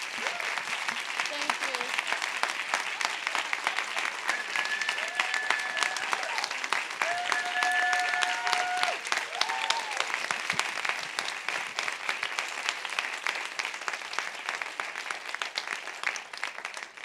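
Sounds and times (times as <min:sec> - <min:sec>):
audience applauding: 0:00.0 - 0:17.0
crowd whooping: 0:00.2 - 0:00.6, 0:03.8 - 0:10.2.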